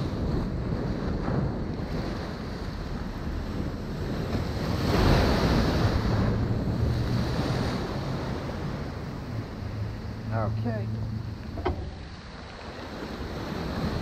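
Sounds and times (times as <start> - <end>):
wave breaking and washing in: 0.0 - 14.0
wind buffeting microphone: 0.0 - 14.0
low steady hum: 8.7 - 12.7.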